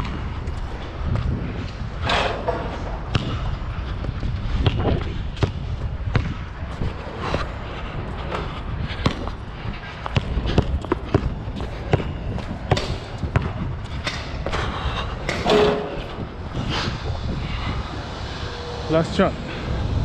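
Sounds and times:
basketball bouncing: 0:04.6 - 0:06.4, 0:10.1 - 0:14.2.

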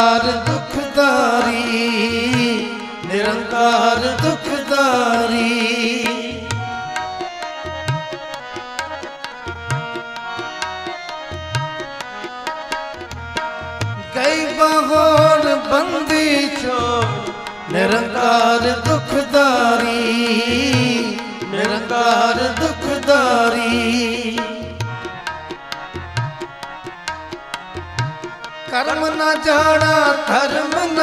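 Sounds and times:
person singing: 0:00.0 - 0:06.8, 0:14.1 - 0:24.9, 0:28.7 - 0:31.0
harmonium notes: 0:00.0 - 0:31.0
tabla beat: 0:00.0 - 0:31.0.

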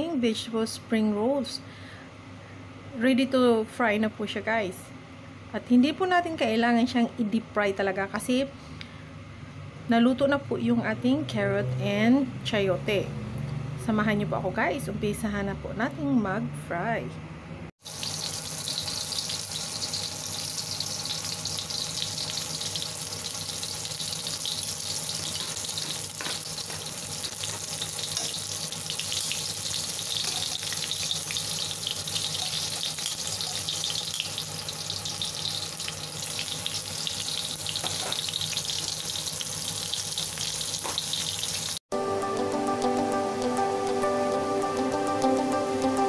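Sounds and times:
food sizzling in hot oil: 0:17.8 - 0:41.8.

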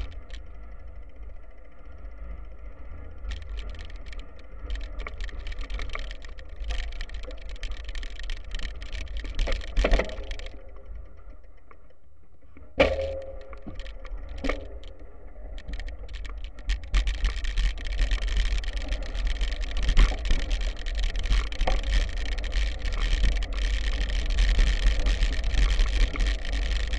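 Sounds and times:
bike rattling: 0:00.0 - 0:26.9
bike tyres crunching on gravel: 0:15.5 - 0:26.9.

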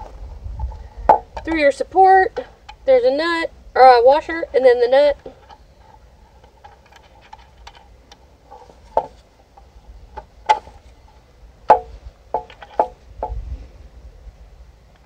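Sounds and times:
wooden knocks: 0:00.0 - 0:01.6, 0:08.5 - 0:09.2, 0:11.7 - 0:13.4.

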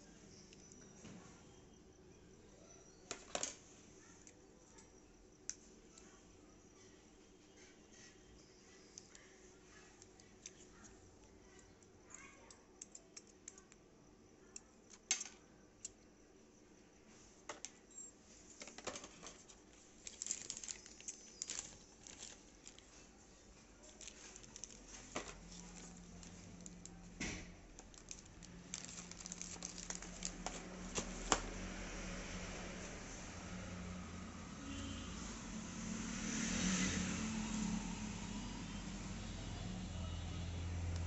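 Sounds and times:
faint low hum: 0:00.0 - 0:41.0
cables and parts handled: 0:03.1 - 0:03.6, 0:07.6 - 0:12.2, 0:17.4 - 0:31.6
small clicks and taps: 0:10.0 - 0:13.8
plastic packaging crinkling: 0:18.5 - 0:31.6.

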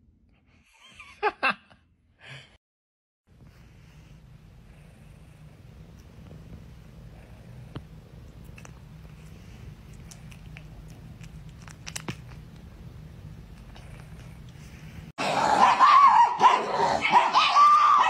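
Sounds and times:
cat purring: 0:04.7 - 0:15.1.

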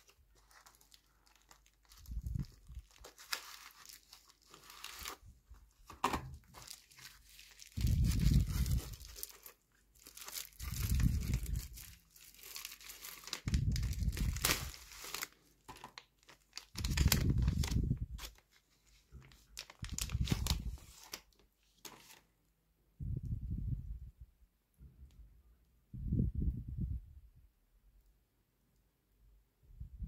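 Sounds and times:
plastic packaging crinkling: 0:00.0 - 0:22.2.

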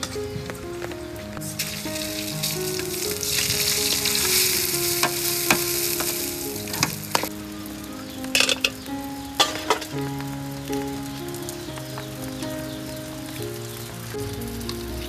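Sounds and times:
oil sizzling in a wok: 0:01.4 - 0:13.4.

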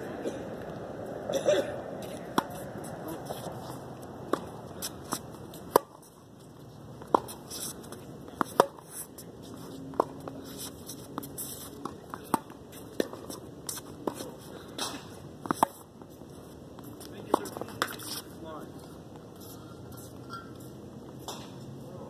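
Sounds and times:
tennis ball bouncing on court: 0:02.2 - 0:03.4, 0:04.3 - 0:06.1, 0:07.0 - 0:08.9, 0:11.8 - 0:14.2
tennis ball hit by rackets: 0:04.3 - 0:06.1, 0:08.3 - 0:08.9, 0:21.2 - 0:21.6.

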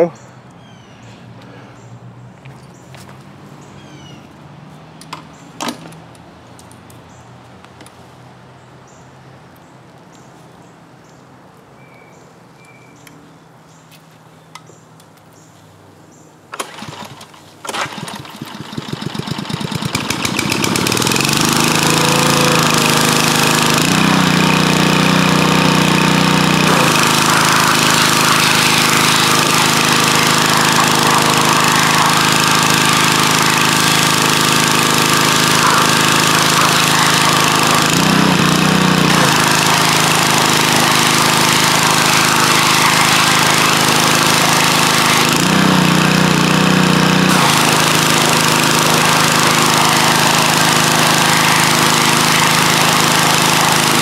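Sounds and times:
engine pull-start cord: 0:16.5 - 0:54.0
gasoline engine running: 0:16.5 - 0:54.0
high-pressure water spray hissing: 0:18.8 - 0:46.5, 0:47.3 - 0:54.0.

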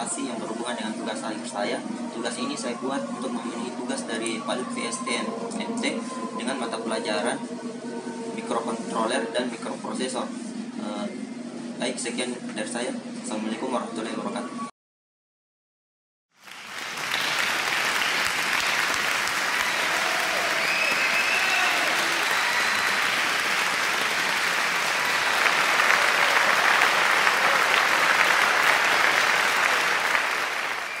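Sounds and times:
audience applause: 0:16.4 - 0:31.0.

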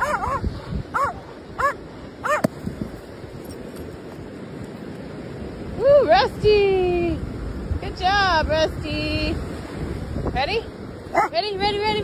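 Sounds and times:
dog yipping: 0:00.0 - 0:02.5, 0:11.1 - 0:11.4.

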